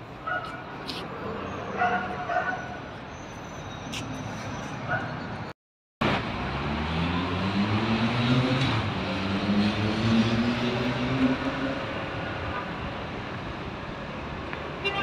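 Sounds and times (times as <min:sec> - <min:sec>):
traffic hum: 0:00.0 - 0:15.0
vehicle engine accelerating: 0:06.0 - 0:12.1.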